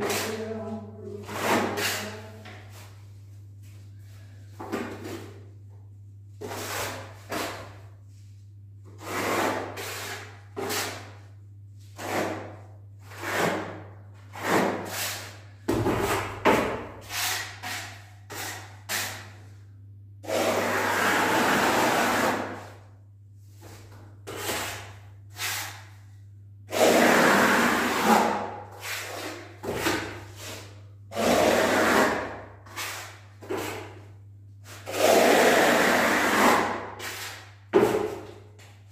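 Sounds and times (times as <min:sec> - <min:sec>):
trowel scraping plaster: 0:00.0 - 0:00.4, 0:01.2 - 0:02.2, 0:06.4 - 0:07.8, 0:09.0 - 0:11.3, 0:11.9 - 0:15.4, 0:17.0 - 0:19.4, 0:20.3 - 0:22.8, 0:23.6 - 0:26.0, 0:26.7 - 0:38.4.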